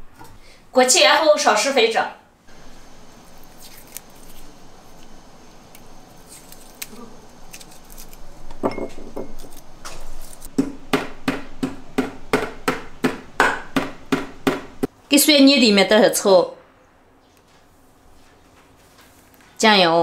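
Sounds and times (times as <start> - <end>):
garlic peel crackling: 2.5 - 8.6, 9.2 - 10.6
pestle pounding in mortar: 10.5 - 14.9.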